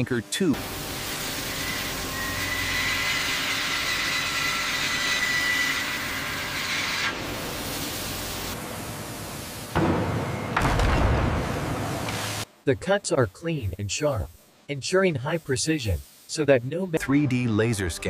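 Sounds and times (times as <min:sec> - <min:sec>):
milling cutter grinding steel: 0:00.6 - 0:07.2.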